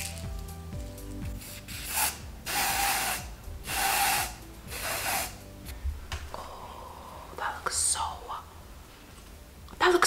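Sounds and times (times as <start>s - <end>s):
aerosol spray hissing: 1.3s - 5.5s.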